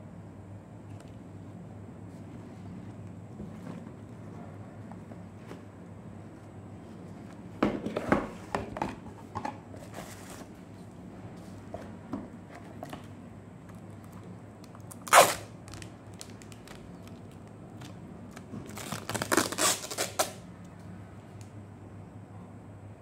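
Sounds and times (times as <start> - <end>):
plastic wrapping crackling: 13.7 - 20.4.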